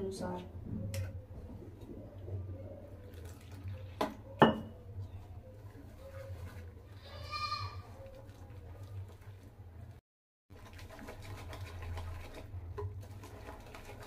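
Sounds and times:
goat bleating: 7.0 - 7.9
whisk stirring dry flour in bowl: 10.5 - 14.0.

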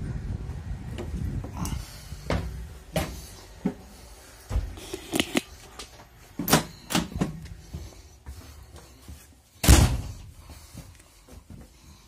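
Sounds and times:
door slamming shut: 9.6 - 10.2.

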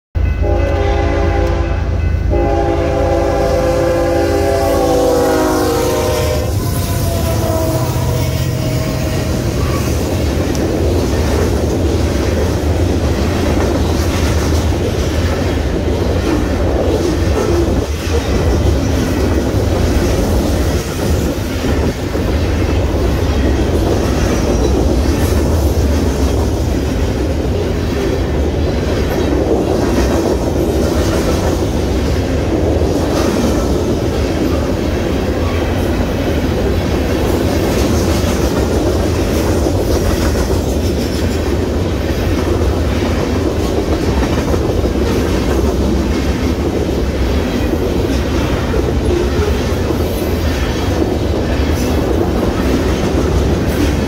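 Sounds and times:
locomotive air horn: 0.4 - 10.0
freight cars rumbling and clacking: 8.6 - 54.0.

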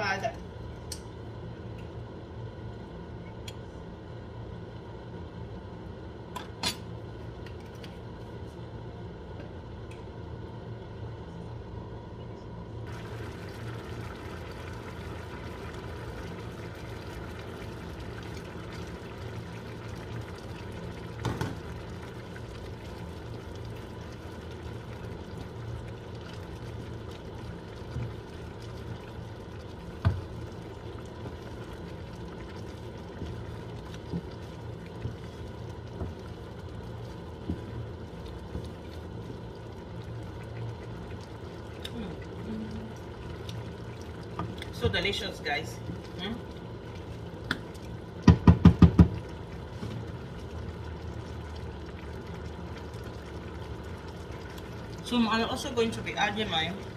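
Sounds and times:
sauce simmering and bubbling: 12.8 - 56.9
wooden spoon knocking on pan: 48.2 - 49.2.

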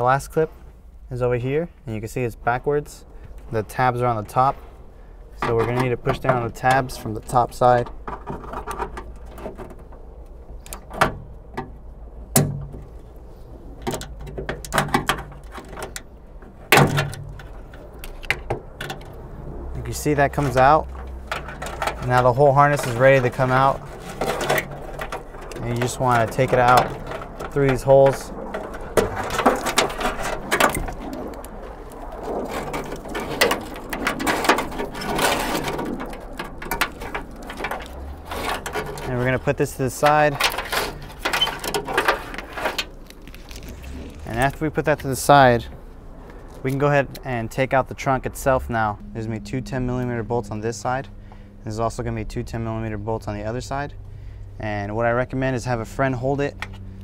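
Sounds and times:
plastic loom scraping against metal: 20.3 - 31.1, 32.4 - 44.6.

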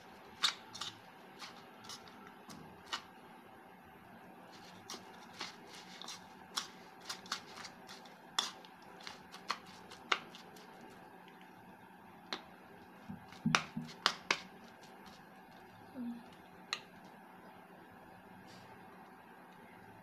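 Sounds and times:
utensil clicking on plate: 0.4 - 3.0, 4.9 - 10.4, 13.4 - 15.2
cabbage rustling: 4.5 - 11.0.

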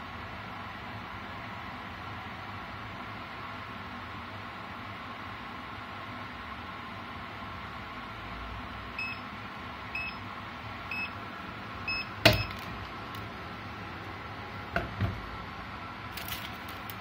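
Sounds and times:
paper rustling: 16.1 - 17.0.

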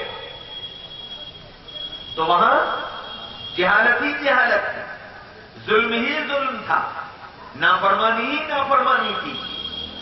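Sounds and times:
man speaking into a microphone: 2.2 - 5.0, 5.6 - 9.6.

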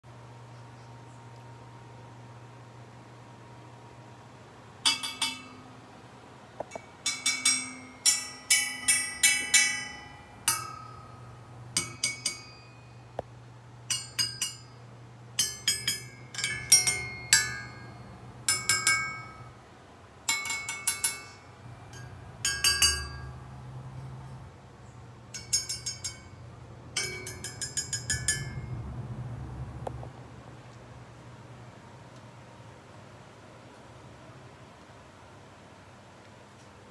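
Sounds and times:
knife tapping silver candelabrum: 4.8 - 5.8, 6.7 - 13.3, 13.9 - 14.8, 15.4 - 19.5, 20.3 - 23.6, 25.3 - 26.4, 27.0 - 28.7.

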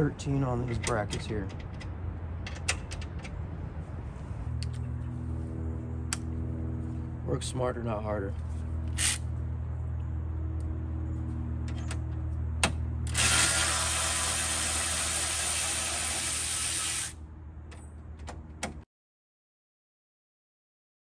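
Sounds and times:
steady low hum: 3.3 - 17.7
power ratchet spinning: 8.9 - 9.2, 13.1 - 17.2.

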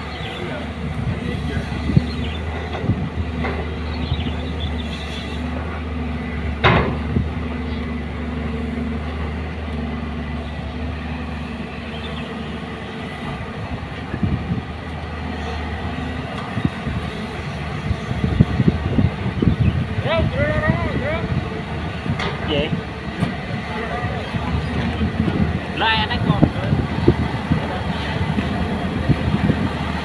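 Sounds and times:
excavator diesel engine running: 0.0 - 30.0.

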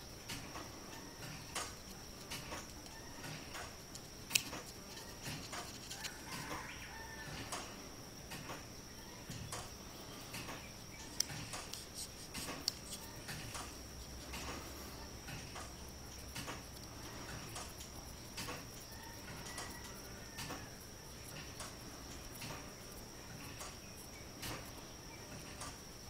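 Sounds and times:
sharp ticks: 1.5 - 6.0
pencil scratching on paper: 4.3 - 6.2, 11.6 - 14.7.

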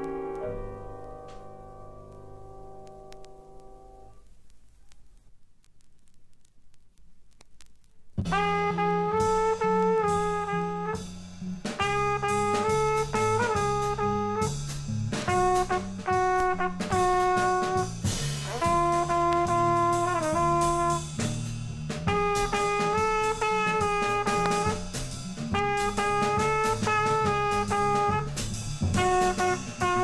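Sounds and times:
drum kit with cymbals: 8.2 - 30.0
trumpet melody: 8.2 - 30.0
walking double bass: 8.2 - 30.0.

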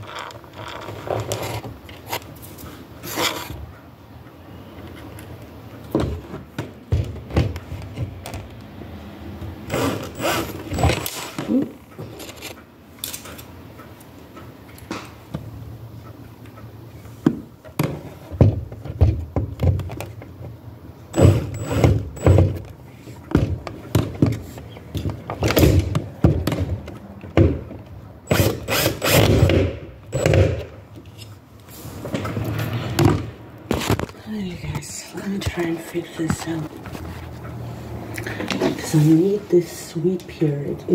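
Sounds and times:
knocks and clicks of hand work: 23.3 - 27.9.

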